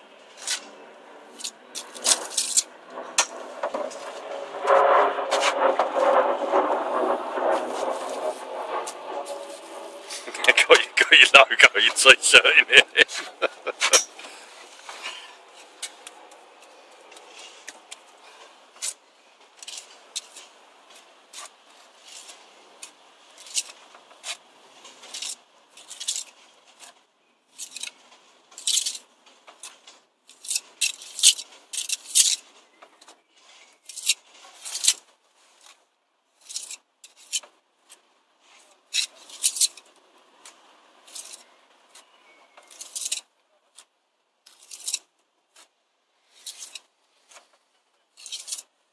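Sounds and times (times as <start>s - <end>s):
trowel scraping mortar: 1.4s - 11.2s, 19.6s - 27.0s, 46.2s - 47.5s.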